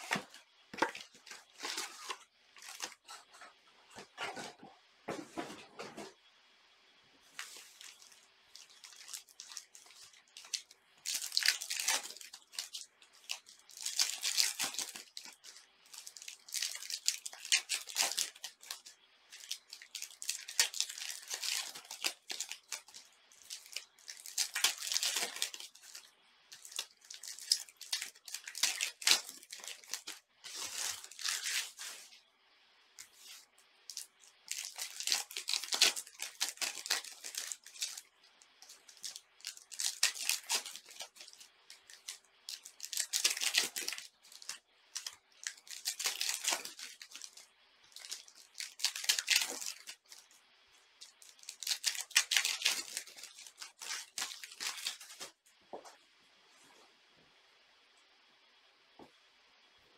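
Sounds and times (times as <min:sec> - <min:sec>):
foil wrappers torn and crinkled: 0:07.4 - 0:32.0, 0:33.9 - 0:50.3, 0:51.0 - 0:55.4.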